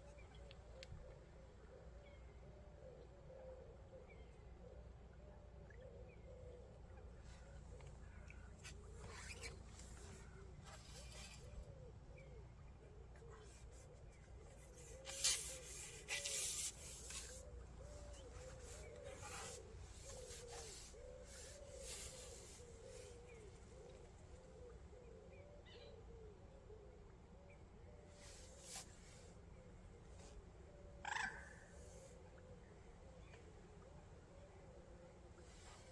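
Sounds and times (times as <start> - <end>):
brief rustle: 14.7 - 17.4.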